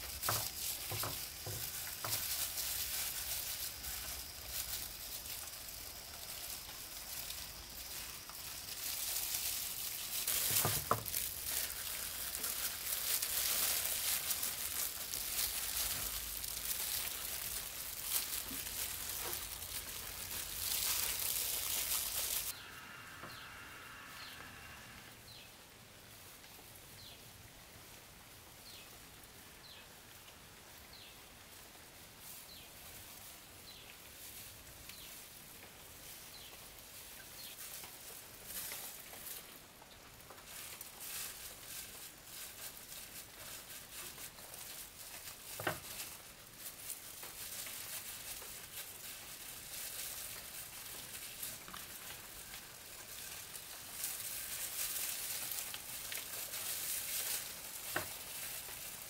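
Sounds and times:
loud steady hiss: 0.0s - 43.3s.

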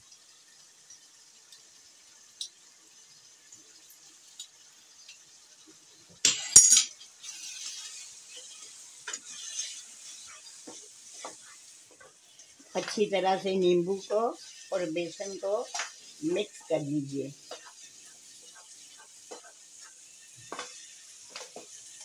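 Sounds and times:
light sizzle: 0.0s - 22.0s
utensils clattering against pan: 6.2s - 7.2s
spatula scraping wok: 6.3s - 13.4s, 17.4s - 22.0s.

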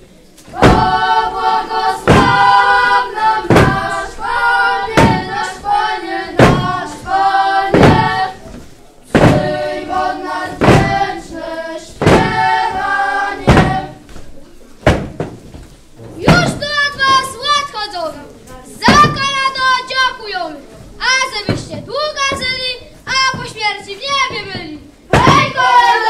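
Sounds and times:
children singing a carol: 0.5s - 14.1s, 21.4s - 26.0s
thuds on wooden stage floor: 0.6s - 1.2s, 2.0s - 4.0s, 4.9s - 5.6s, 6.3s - 7.0s, 7.6s - 9.7s, 10.5s - 11.3s, 11.9s - 14.0s, 14.8s - 17.3s, 18.8s - 19.5s, 21.4s - 25.9s.

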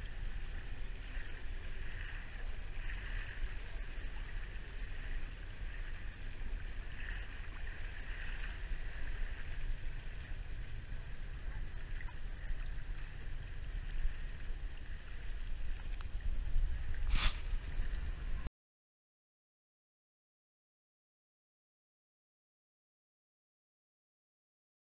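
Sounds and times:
boat motor rumble: 0.0s - 18.5s
water hissing along hull: 0.0s - 18.5s
water splash: 16.8s - 18.5s.

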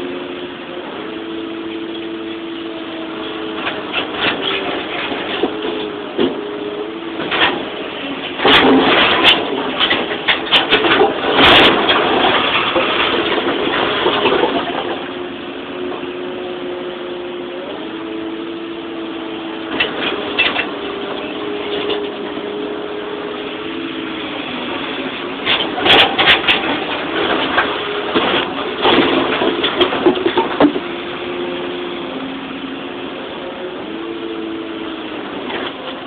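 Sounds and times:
excavator engine and hydraulics: 0.0s - 36.0s
hydraulic whine: 0.0s - 36.0s
dirt and rock clattering: 3.0s - 16.2s, 19.5s - 34.2s.

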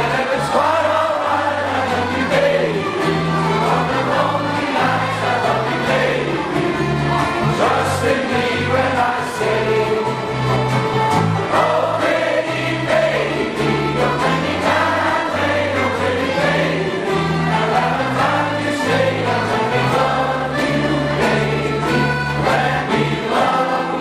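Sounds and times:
choir singing: 0.0s - 24.0s
held bass notes accompaniment: 0.0s - 24.0s.

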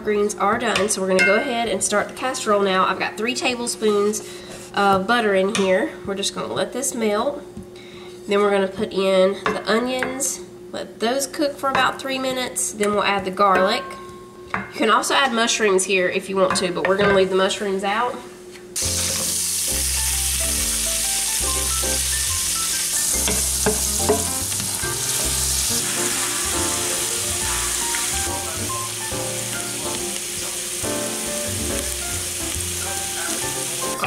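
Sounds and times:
light background music: 18.8s - 34.0s
onion sizzling in butter: 18.8s - 34.0s.

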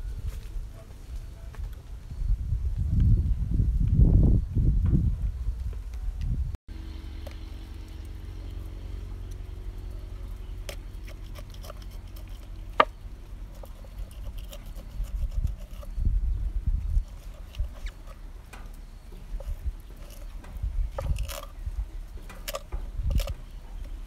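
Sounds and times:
faint low hum: 0.0s - 24.0s
knife scraping fish: 10.6s - 16.0s, 17.0s - 18.2s, 19.3s - 20.4s, 21.0s - 21.6s, 22.4s - 23.4s.

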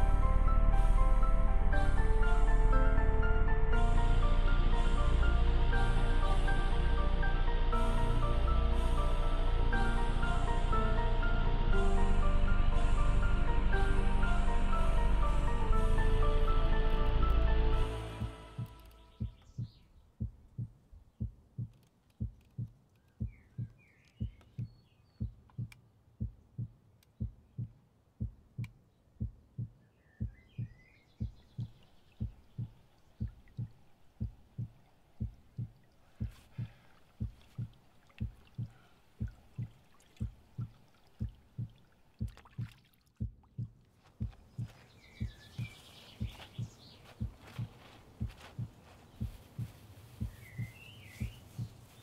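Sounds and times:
heartbeat-like thudding: 18.2s - 51.9s
faint bird chirps: 18.5s - 20.7s, 22.6s - 25.7s, 29.6s - 41.0s, 44.4s - 47.9s, 49.0s - 52.0s.

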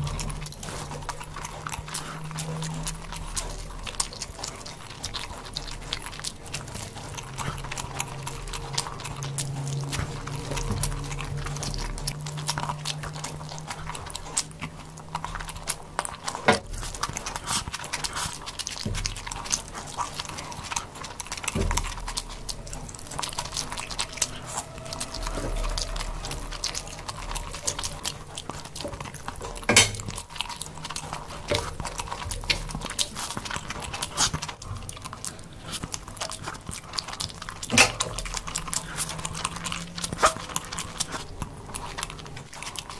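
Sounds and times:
person chewing food: 0.0s - 42.9s.

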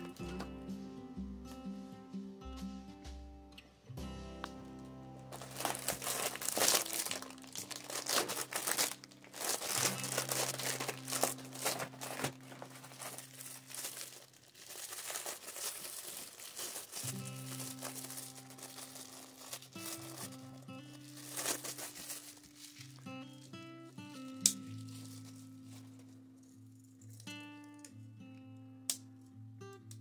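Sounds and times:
background music: 0.0s - 30.0s
plastic packaging crinkling: 5.3s - 27.4s.

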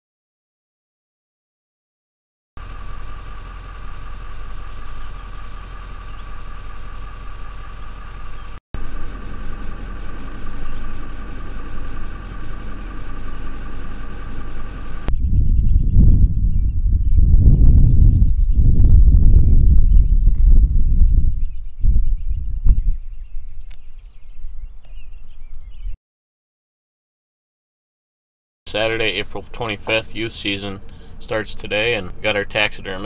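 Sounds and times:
vehicle engine idling: 2.6s - 15.2s, 28.7s - 33.0s
low engine rumble: 2.6s - 26.0s, 28.7s - 33.0s.

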